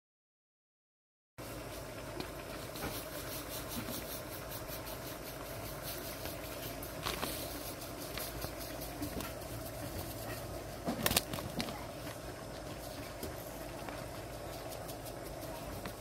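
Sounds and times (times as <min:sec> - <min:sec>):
steady low hum: 0:01.4 - 0:16.0.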